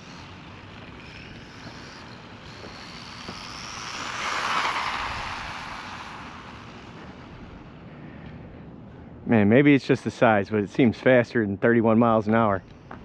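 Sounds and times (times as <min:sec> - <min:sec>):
tyre noise on asphalt: 0:00.0 - 0:07.7
rc truck motor whine: 0:00.0 - 0:07.9.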